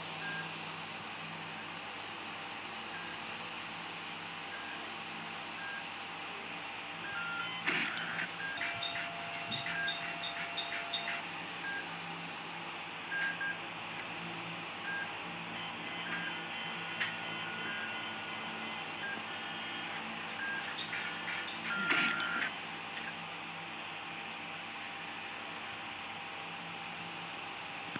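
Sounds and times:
hum of running machines: 0.0s - 27.9s
electronic medical beeps: 7.1s - 11.9s, 14.9s - 23.2s.

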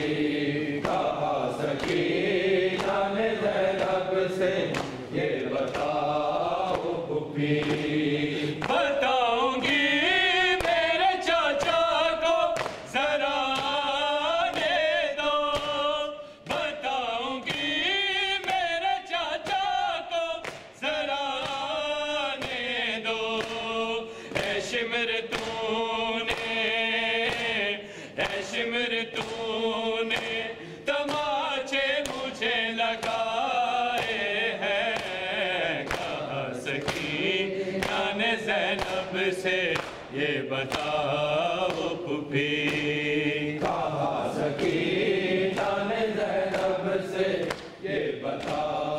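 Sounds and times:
hands striking chest: 0.0s - 2.1s, 4.6s - 6.0s
men chanting a lament: 0.0s - 48.9s.

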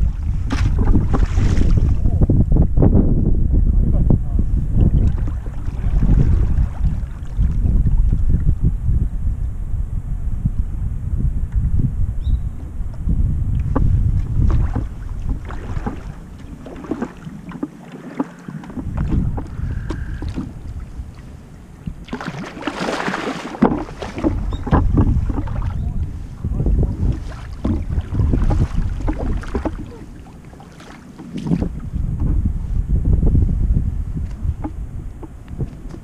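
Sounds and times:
paddle splashing in water: 0.0s - 2.1s, 4.8s - 8.3s, 13.6s - 32.4s
rush of splashing water: 0.0s - 2.1s, 4.8s - 8.4s, 13.7s - 31.9s
wind rumbling on microphone: 0.0s - 36.0s.

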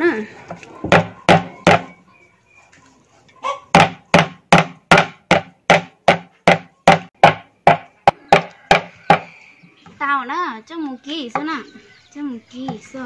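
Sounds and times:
knife chopping meat on wooden board: 3.7s - 9.3s.

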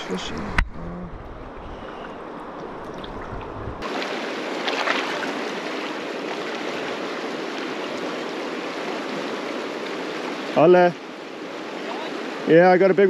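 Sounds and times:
river water rushing: 1.4s - 13.0s
water splash: 1.8s - 10.6s.

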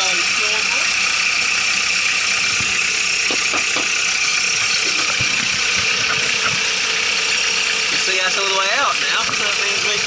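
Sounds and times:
diesel engine idling: 0.0s - 10.0s.

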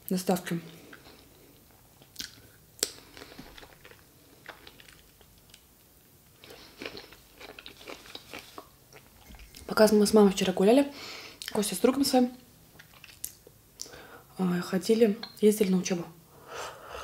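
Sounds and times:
chewing and mouth smacks: 2.0s - 5.7s, 6.4s - 9.7s, 12.7s - 14.0s.

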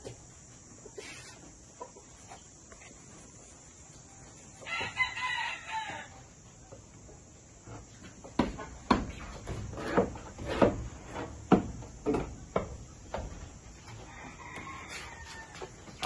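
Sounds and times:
rooster crowing: 4.6s - 6.3s, 13.9s - 16.0s
sharp knocks on wood: 8.3s - 10.9s.

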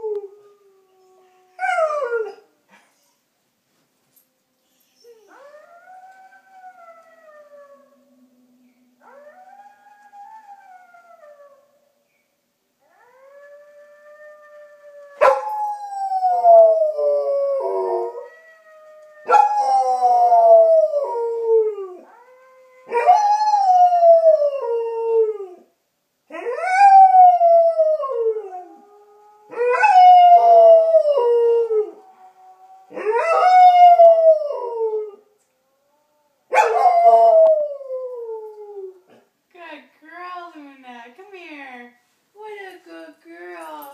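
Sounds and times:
dog howling: 13.0s - 25.2s, 29.5s - 35.2s.

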